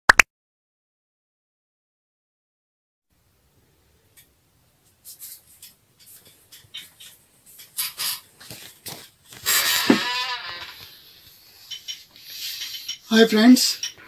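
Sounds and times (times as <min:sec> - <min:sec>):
rustling and clicking handling: 0:04.8 - 0:09.5
scraping sound: 0:09.3 - 0:13.1.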